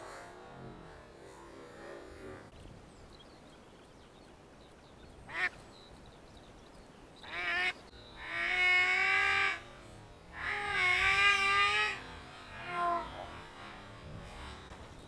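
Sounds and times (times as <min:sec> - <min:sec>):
duck quacking: 0:07.3 - 0:13.9.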